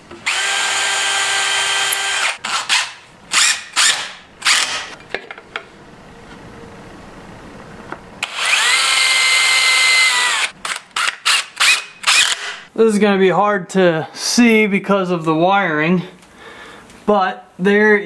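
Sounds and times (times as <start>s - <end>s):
cordless drill boring into wood: 0.2s - 4.9s, 8.2s - 12.6s.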